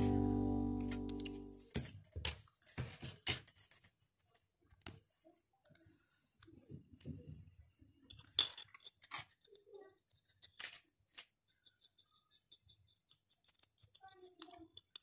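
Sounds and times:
small objects clicking: 8.1s - 15.0s.

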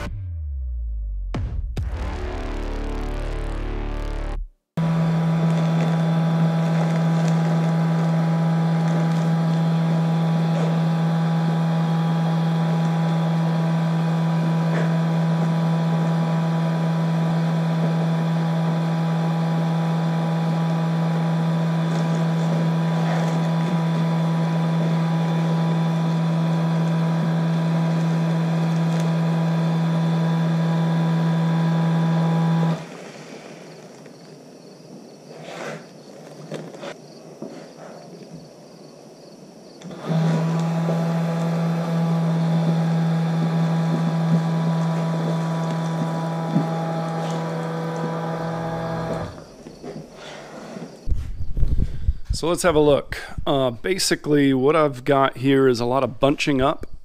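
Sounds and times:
vacuum pump humming: 4.8s - 33.4s, 39.8s - 50.1s.

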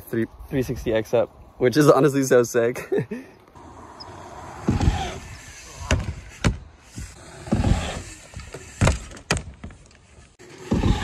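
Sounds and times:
mountain bike thuds and knocks: 4.6s - 5.0s, 5.8s - 9.9s.

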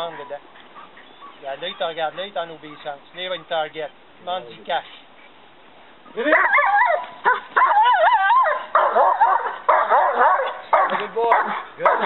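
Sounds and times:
dog barking and yelping: 6.2s - 12.0s.

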